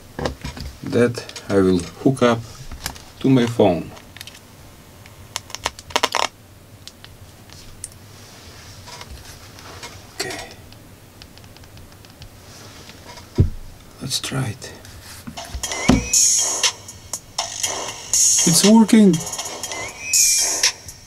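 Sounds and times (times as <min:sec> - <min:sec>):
low thump: 0:13.4 - 0:13.7, 0:15.9 - 0:16.2.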